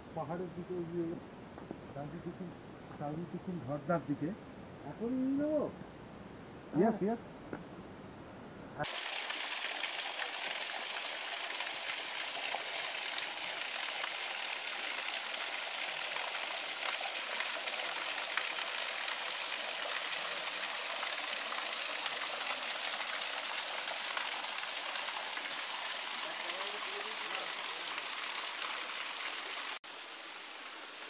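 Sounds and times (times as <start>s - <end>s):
waterfall splashing over rock: 8.8s - 31.0s.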